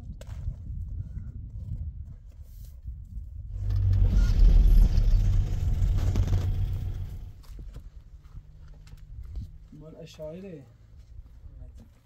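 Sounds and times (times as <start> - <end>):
car driving on dirt track: 3.6 - 10.0.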